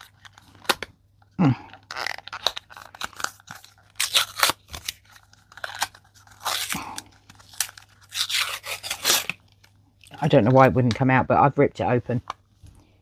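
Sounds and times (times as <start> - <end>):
cardboard box tearing: 1.9 - 6.8, 7.5 - 9.4.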